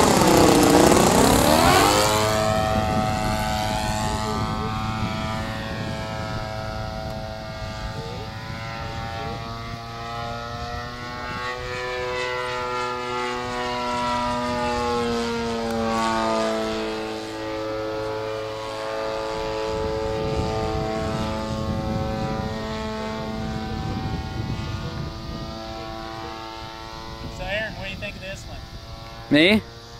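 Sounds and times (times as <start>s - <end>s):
model airplane motor and propeller: 0.0s - 29.9s.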